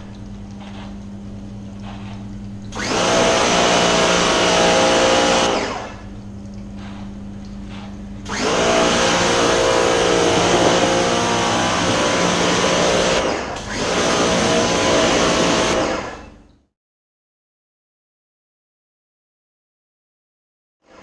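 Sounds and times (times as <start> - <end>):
pressure washer spraying: 1.8 - 6.0, 7.7 - 16.2.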